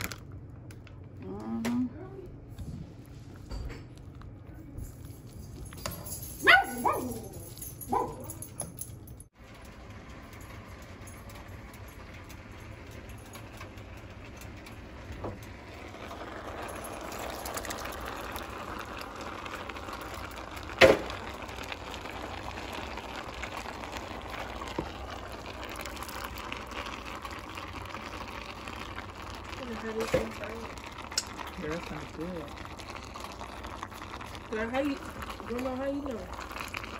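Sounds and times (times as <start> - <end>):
food sizzling in a pan: 14.8 - 36.9.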